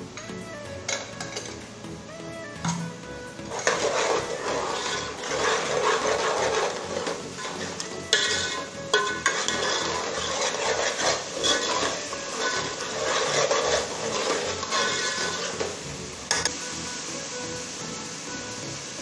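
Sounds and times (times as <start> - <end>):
metal spoon scraping a pot: 0.2 - 1.7, 3.4 - 16.5
spoon clinking against pot: 0.9 - 1.6, 7.5 - 15.6.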